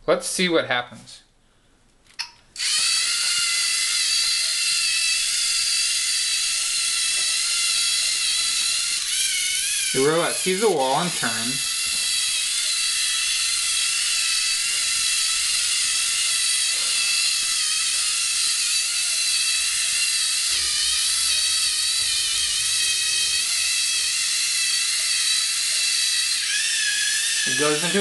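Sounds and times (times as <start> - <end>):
electric motor gear whine: 2.6 - 28.0.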